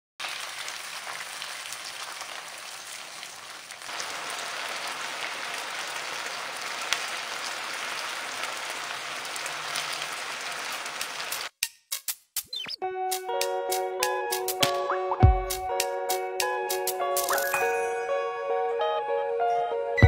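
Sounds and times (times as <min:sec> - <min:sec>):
chicken wings sizzling in a pan: 0:00.2 - 0:11.5.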